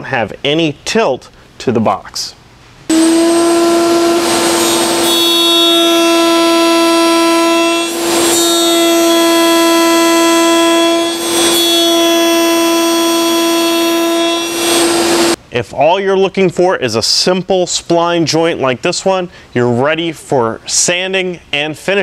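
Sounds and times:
router whining: 2.9s - 15.4s.

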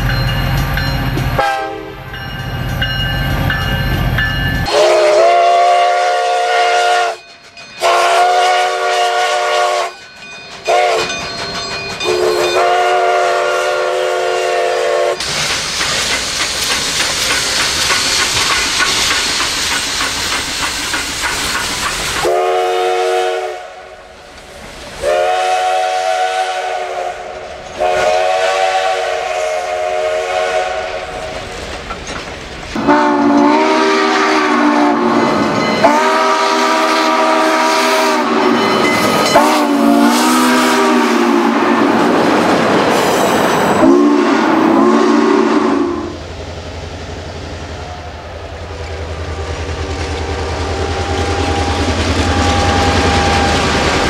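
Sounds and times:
steam locomotive chime whistle: 0.0s - 15.4s, 22.2s - 24.0s, 25.0s - 31.4s, 32.8s - 41.9s, 43.0s - 46.2s, 50.3s - 54.0s
passing train hiss and rumble: 0.0s - 54.0s.

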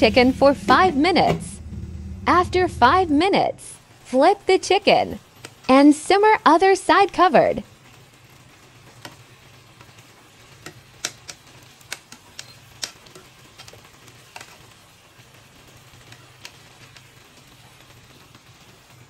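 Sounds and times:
low steady hum: 0.0s - 5.2s
chicken simmering with faint sizzle: 5.2s - 19.0s.

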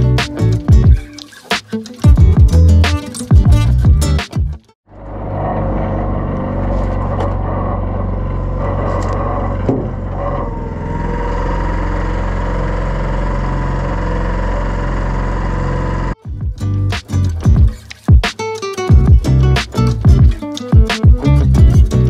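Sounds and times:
outboard motor running: 6.8s - 16.2s.

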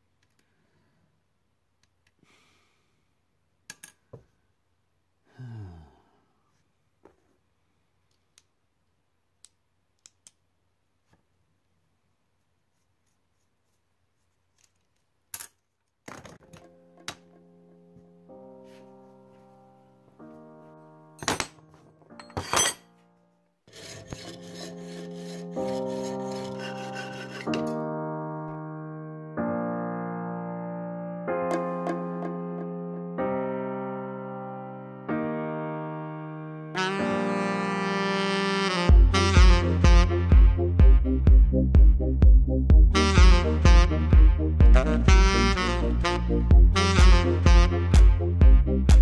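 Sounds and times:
short low sigh: 5.2s - 6.4s
piano music: 16.4s - 23.4s, 24.2s - 49.0s
scriber scratching on metal: 23.7s - 27.7s
hacksaw cutting metal tube: 23.7s - 27.8s.

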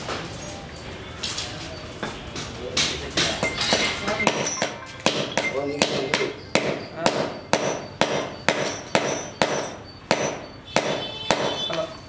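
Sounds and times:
hammer striking metal: 2.8s - 12.0s.

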